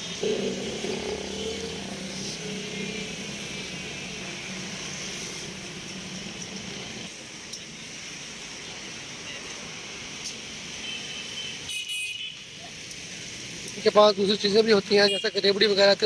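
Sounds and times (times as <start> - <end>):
road traffic: 0.0 - 16.0
motorcycle engine passing: 0.2 - 5.6.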